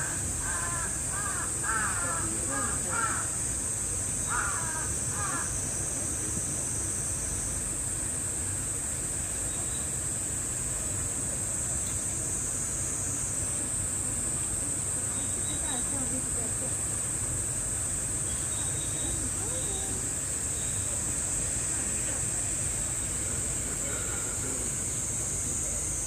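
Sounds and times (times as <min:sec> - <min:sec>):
crows cawing: 0:00.0 - 0:03.4, 0:04.3 - 0:05.5
steady high-pitched hiss: 0:00.0 - 0:26.0.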